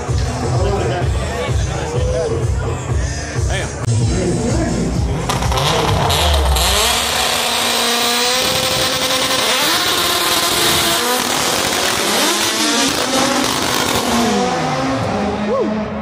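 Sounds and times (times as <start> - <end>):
racing car engines revving: 3.8 - 16.0.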